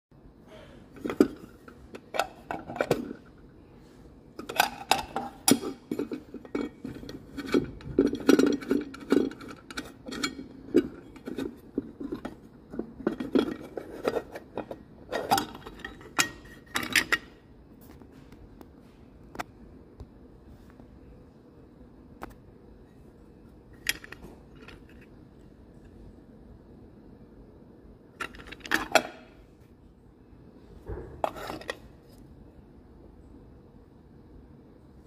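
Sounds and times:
metal enclosure clinks and scrapes: 0:00.9 - 0:03.4, 0:04.4 - 0:17.4, 0:28.2 - 0:29.4, 0:31.2 - 0:31.9.

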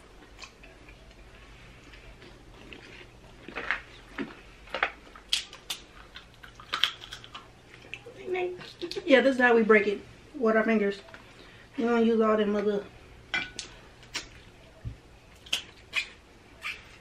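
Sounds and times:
sucking and chewing: 0:00.1 - 0:09.0
crab shell cracking: 0:04.8 - 0:07.5.

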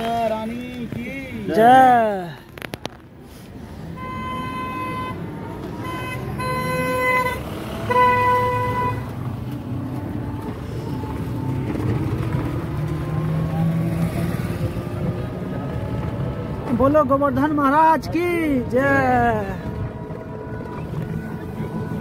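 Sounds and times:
moving vehicle running noise: 0:00.0 - 0:22.0
road traffic: 0:00.0 - 0:22.0
vehicle horn honking: 0:04.0 - 0:09.1.

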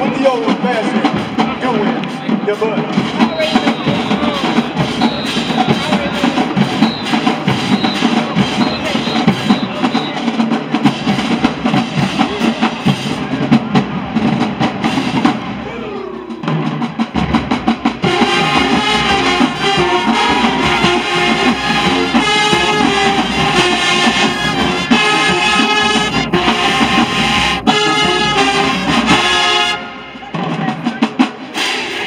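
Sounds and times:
drumline drums: 0:00.0 - 0:32.0
brass section playing loudly: 0:02.6 - 0:13.5, 0:14.2 - 0:32.0.

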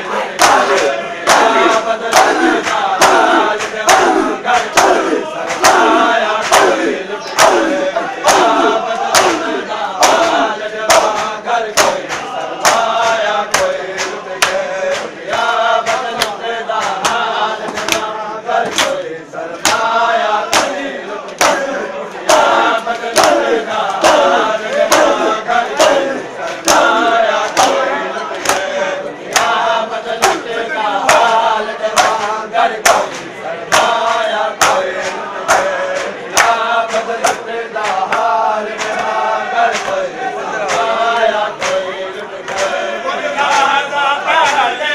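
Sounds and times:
men chanting a lament in chorus: 0:00.0 - 0:44.9
hands slapping bare chests: 0:00.4 - 0:19.0, 0:19.6 - 0:19.9, 0:20.5 - 0:21.7, 0:22.3 - 0:28.7, 0:30.2 - 0:30.4, 0:32.0 - 0:40.0.

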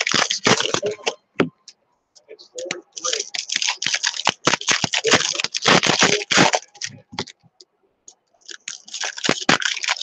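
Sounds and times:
foil wrapper crinkling and tearing: 0:00.0 - 0:01.0, 0:03.0 - 0:07.3, 0:08.4 - 0:10.0.

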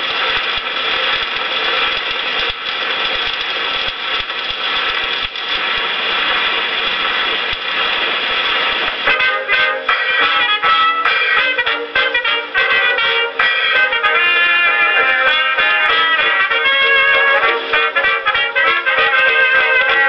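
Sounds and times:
record surface hiss: 0:00.0 - 0:20.0
dance orchestra with brass: 0:08.9 - 0:20.0.

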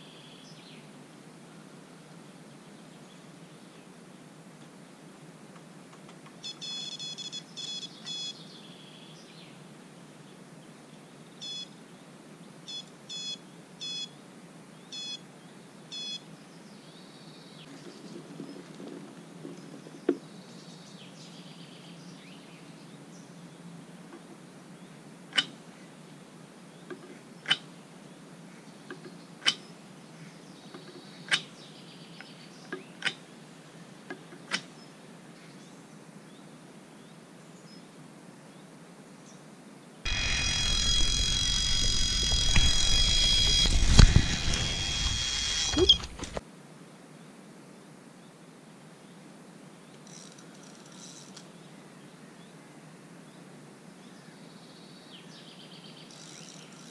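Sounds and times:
electronic bite alarms beeping: 0:06.4 - 0:08.4, 0:11.4 - 0:11.7, 0:12.7 - 0:14.1, 0:15.0 - 0:15.2, 0:16.0 - 0:16.2, 0:40.1 - 0:46.4
sharp clicks: 0:40.1 - 0:46.4.

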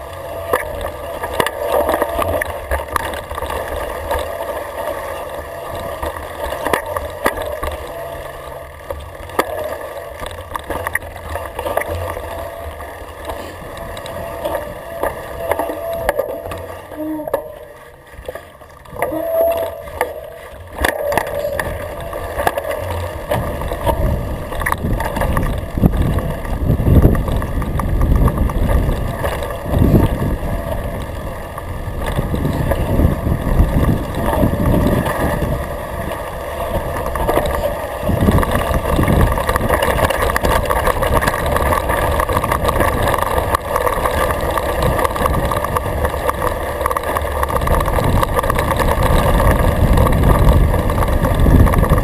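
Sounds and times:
bike rattles and clicks: 0:00.0 - 0:52.0
bike tyre rumble: 0:00.0 - 0:52.0
wind buffeting microphone: 0:21.6 - 0:52.0.

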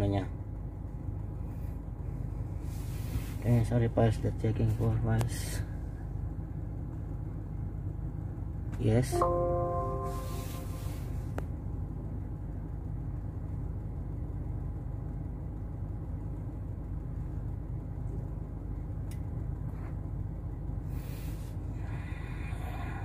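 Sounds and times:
low background rumble: 0:00.0 - 0:23.0
brief hiss: 0:10.1 - 0:11.2.

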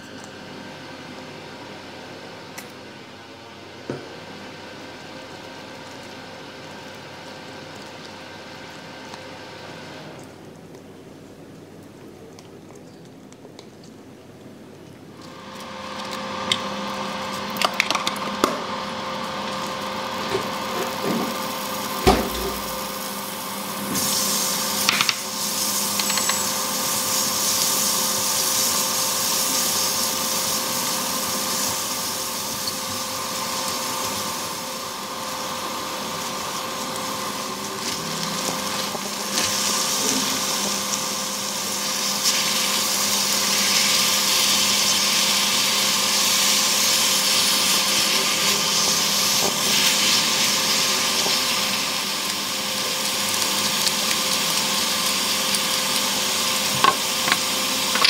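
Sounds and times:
onions sizzling in a frying pan: 0:15.2 - 0:58.0
electric hum: 0:15.9 - 0:44.9.

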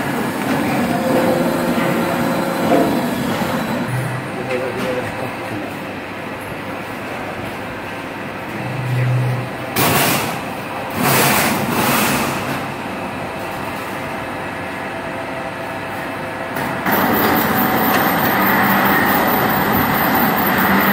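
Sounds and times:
machine mechanical drone: 0:00.0 - 0:04.8, 0:07.8 - 0:15.0, 0:15.8 - 0:20.9.

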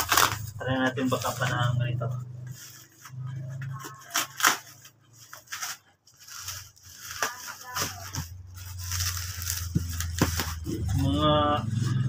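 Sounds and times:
scissors snipping plastic sack: 0:00.0 - 0:00.4, 0:04.1 - 0:04.7, 0:07.1 - 0:10.6
plastic sack tearing: 0:00.0 - 0:01.8, 0:02.4 - 0:12.0.

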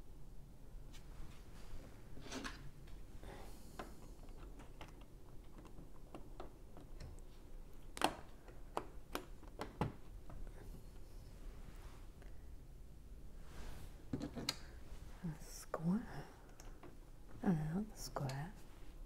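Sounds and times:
sharp plastic snaps: 0:07.8 - 0:10.0.

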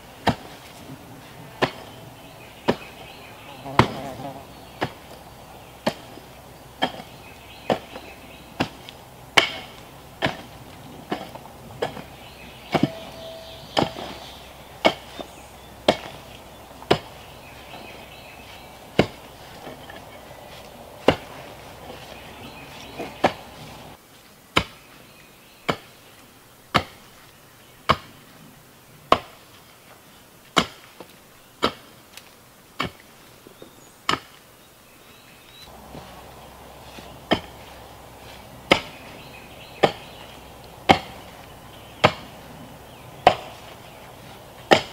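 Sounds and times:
mattock chopping into dirt: 0:02.6 - 0:05.2, 0:05.8 - 0:23.9, 0:35.7 - 0:44.9.

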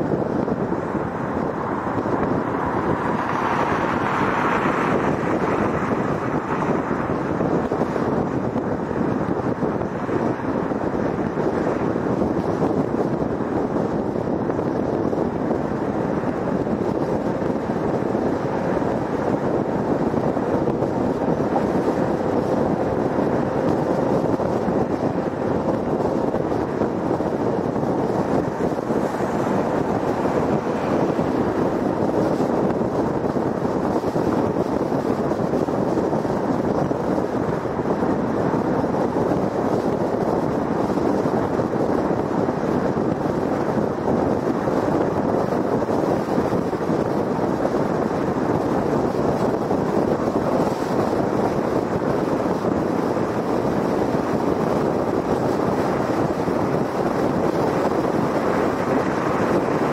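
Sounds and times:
tyres on pavement: 0:00.0 - 0:43.6
rushing wind: 0:00.0 - 0:59.9.

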